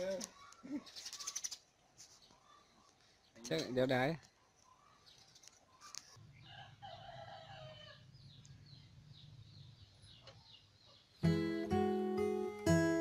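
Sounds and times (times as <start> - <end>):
rooster crowing: 6.5 - 8.0
strummed acoustic guitar: 11.2 - 13.0.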